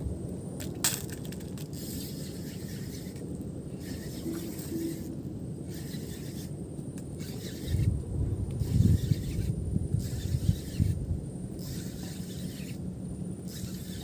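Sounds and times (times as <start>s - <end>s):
wind on microphone: 1.8s - 6.5s, 7.2s - 12.8s.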